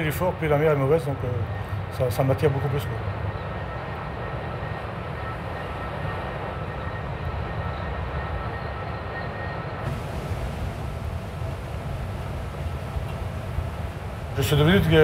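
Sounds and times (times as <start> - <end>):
bright hiss: 9.8 - 15.0
rough sea roaring: 9.8 - 15.0
wind rumbling on microphone: 9.8 - 15.0.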